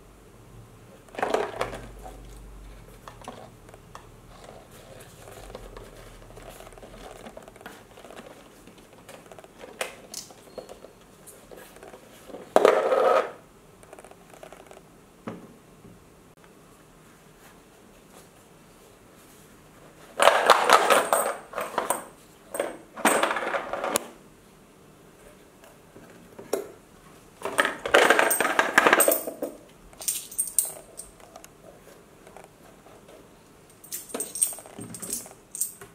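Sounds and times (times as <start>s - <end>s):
coin rolling in cardboard box: 12.5s - 14.8s
coin rattling in cardboard box: 27.6s - 31.2s, 33.8s - 35.8s
metallic coin clinks: 33.7s - 35.8s.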